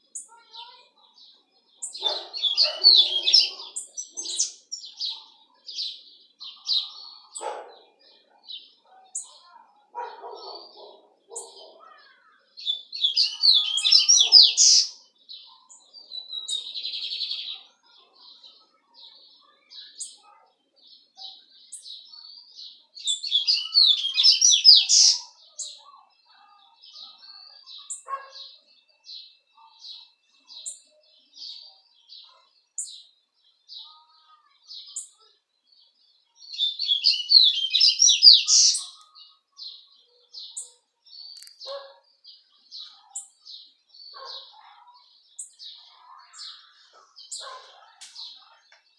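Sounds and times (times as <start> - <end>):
songbird twittering: 1.8 - 5.0, 12.6 - 15.0, 16.2 - 17.2, 23.0 - 25.8, 36.5 - 39.1.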